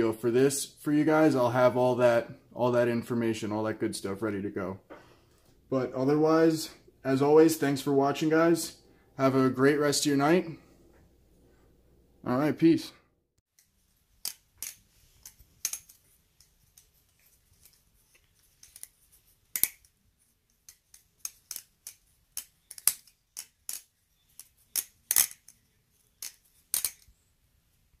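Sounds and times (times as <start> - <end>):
metallic knife handle clicks: 20.7 - 25.6, 26.2 - 27.1.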